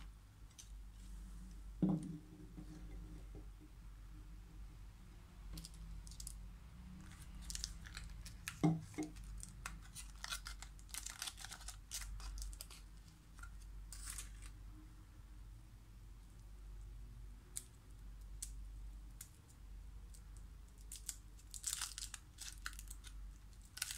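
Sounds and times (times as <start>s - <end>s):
knock: 1.8s - 2.2s
foil wrapper crinkling: 7.4s - 14.5s, 20.8s - 23.9s.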